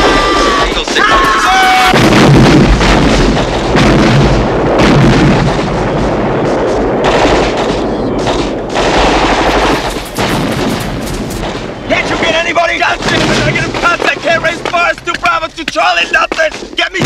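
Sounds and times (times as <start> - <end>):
rapid machine-gun fire: 0.0 - 12.2
explosions: 0.0 - 15.4.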